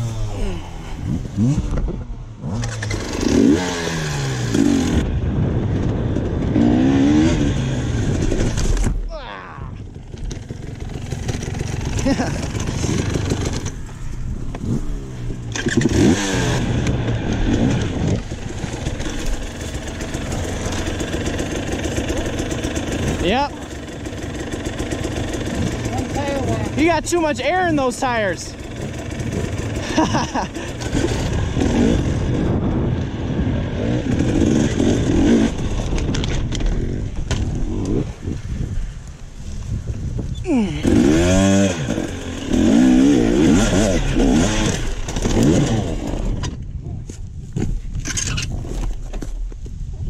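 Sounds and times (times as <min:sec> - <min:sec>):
dirt bike engine revving: 0:00.0 - 0:05.4, 0:06.1 - 0:08.8, 0:09.8 - 0:38.3, 0:40.4 - 0:46.4.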